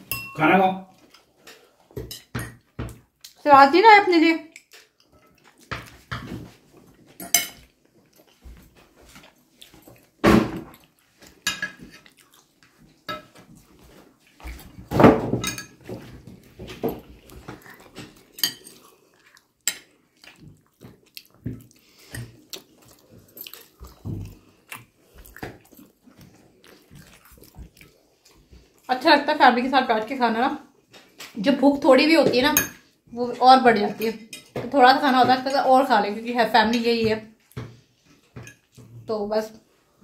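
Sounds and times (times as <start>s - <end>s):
plates and cutlery clinking: 7.1s - 8.2s, 9.1s - 12.1s, 13.0s - 13.6s, 14.6s - 18.8s, 38.2s - 38.8s.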